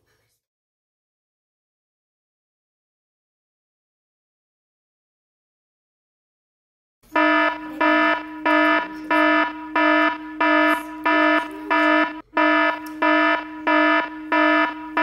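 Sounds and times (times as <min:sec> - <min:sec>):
electronic alarm beeping: 0:07.1 - 0:15.0.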